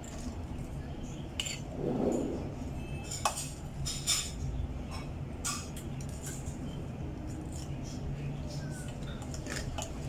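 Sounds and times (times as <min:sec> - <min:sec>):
steady low hum: 0:00.0 - 0:09.4
cutlery clinking on ceramic bowl: 0:03.0 - 0:06.4.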